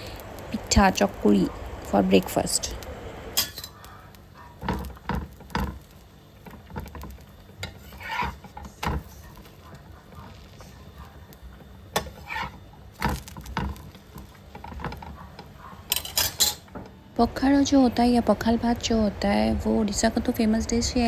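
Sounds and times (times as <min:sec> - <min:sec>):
utensils clinking against cookware: 0:03.4 - 0:03.8, 0:15.9 - 0:16.8.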